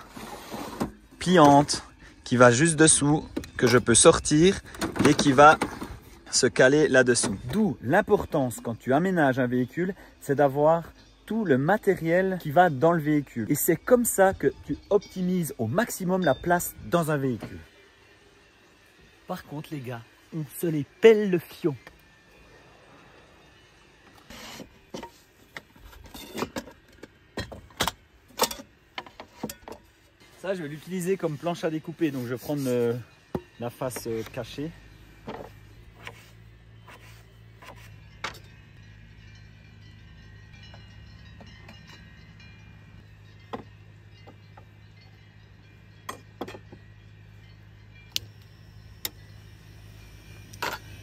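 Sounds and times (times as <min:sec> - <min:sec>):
wood scraping: 0:00.0 - 0:01.0, 0:35.3 - 0:38.3
steady low hum: 0:13.9 - 0:51.0
metallic clinks and knocks: 0:40.3 - 0:48.2.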